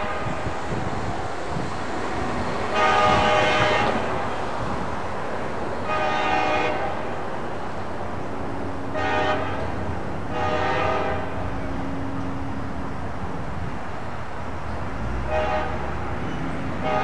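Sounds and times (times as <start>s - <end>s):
train horn blasts: 0.0s - 0.5s, 2.7s - 4.2s, 5.8s - 7.0s, 8.9s - 11.5s, 15.2s - 17.0s
train low rumble: 0.0s - 17.0s.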